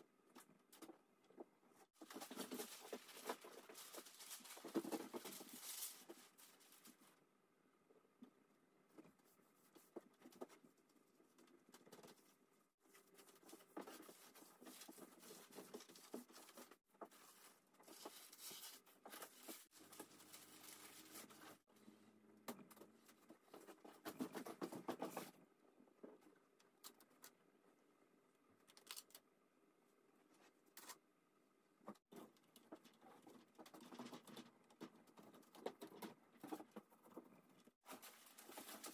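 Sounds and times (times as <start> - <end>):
thin paper rustling and crackling: 2.0 - 7.2.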